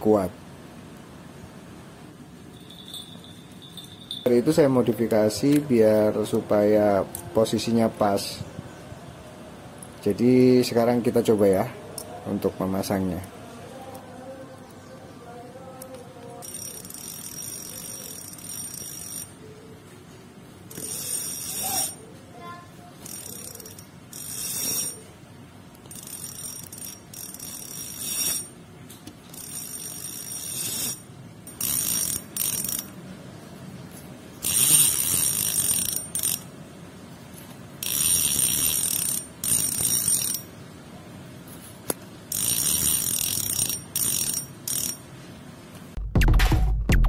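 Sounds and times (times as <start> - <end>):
fishing reel clicker ratcheting: 15.9 - 19.4, 20.7 - 22.0, 23.0 - 25.0, 25.8 - 28.5, 29.3 - 32.9, 34.4 - 36.5, 37.8 - 40.4, 42.3 - 45.0.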